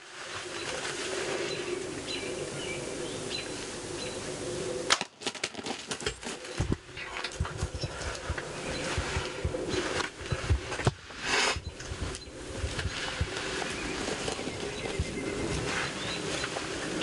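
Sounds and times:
wings flapping: 0:04.8 - 0:17.0.

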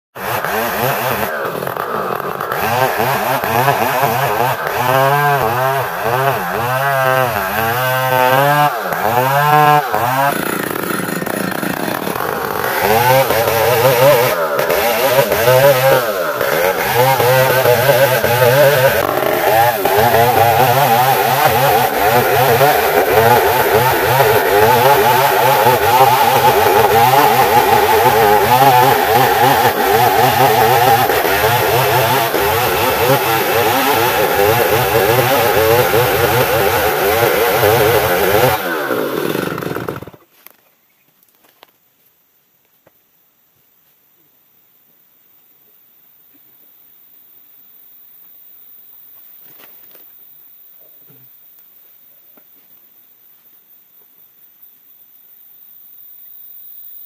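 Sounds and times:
chainsaw cutting through log: 0:00.1 - 0:40.3.

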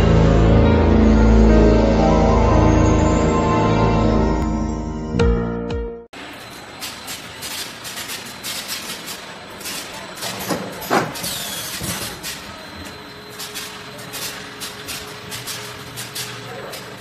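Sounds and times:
loud machine clatter: 0:06.2 - 0:17.0
machine clicks and clacks: 0:06.8 - 0:12.6, 0:13.3 - 0:17.0.

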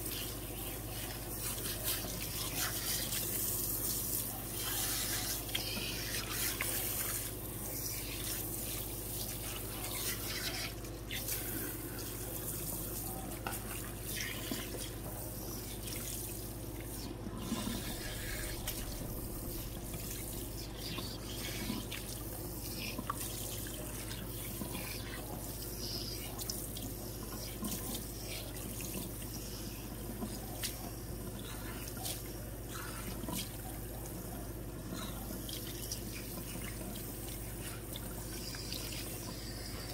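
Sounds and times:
water spraying over hair into bowl: 0:00.0 - 0:29.2.

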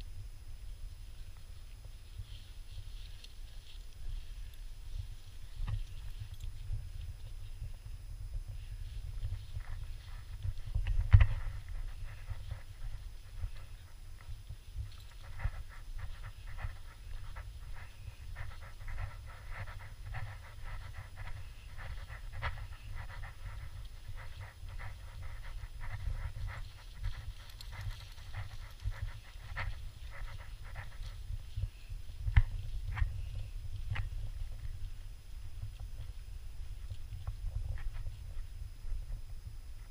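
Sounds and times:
wind rumble on microphone: 0:00.0 - 0:39.9
dog panting: 0:09.5 - 0:31.4.

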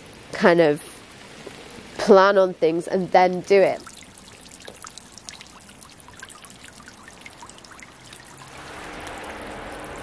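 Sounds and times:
rush of water: 0:00.0 - 0:10.0
water trickling and dripping: 0:00.0 - 0:10.0
low steady hum: 0:03.7 - 0:10.0.

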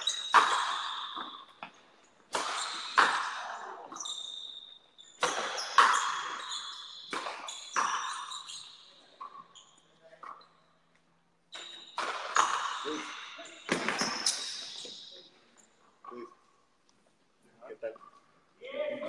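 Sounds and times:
racquets striking rubber ball: 0:00.0 - 0:01.7, 0:02.3 - 0:03.6, 0:05.2 - 0:06.4, 0:07.1 - 0:08.2, 0:11.6 - 0:14.5.

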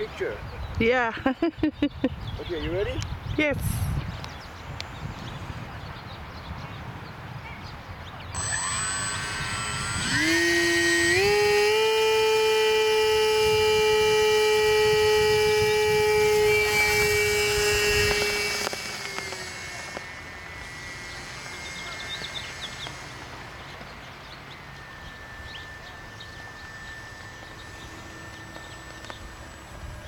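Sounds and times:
model airplane motor whine: 0:08.3 - 0:30.0.

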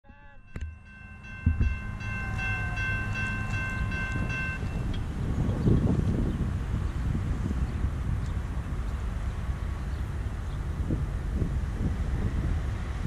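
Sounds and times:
distant locomotive horn chord: 0:00.0 - 0:05.0
low train rumble: 0:00.0 - 0:13.0.

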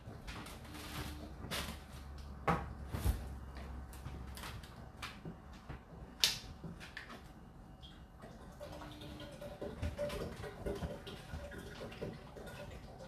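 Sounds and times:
dishwasher humming: 0:00.0 - 0:13.0.

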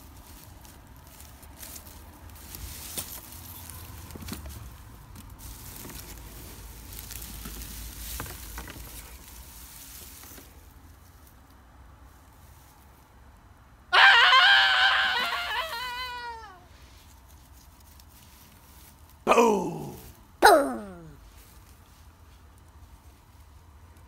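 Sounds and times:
straw bedding rustling and crackling: 0:00.0 - 0:13.2, 0:14.9 - 0:19.2.

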